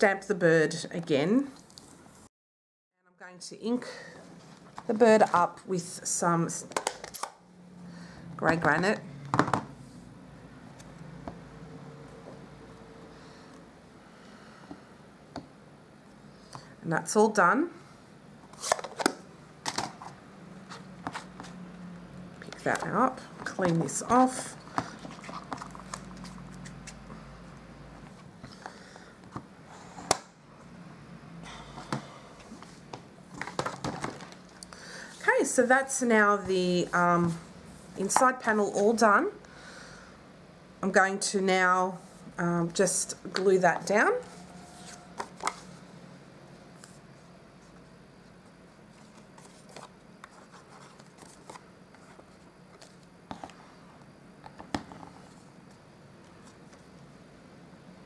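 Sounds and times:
paper rustling and sliding: 44.2 - 45.8, 48.9 - 53.6.

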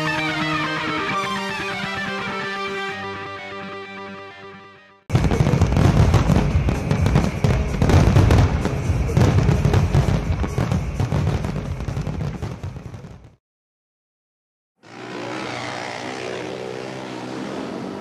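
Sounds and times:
fireworks crackling and booming: 5.1 - 13.4.

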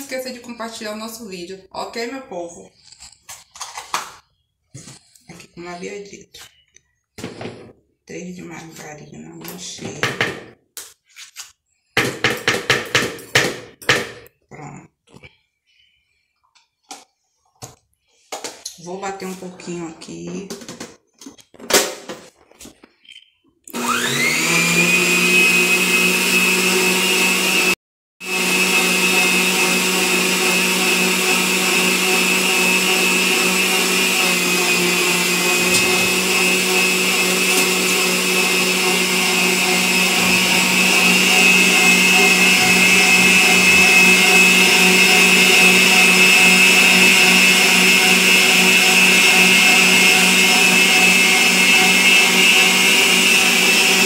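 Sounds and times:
stand mixer motor whine: 23.7 - 54.0.

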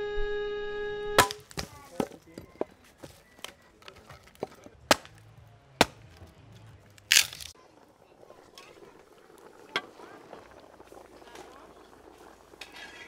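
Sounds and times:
axe chopping firewood: 1.2 - 2.2, 4.4 - 5.2, 5.8 - 6.2.

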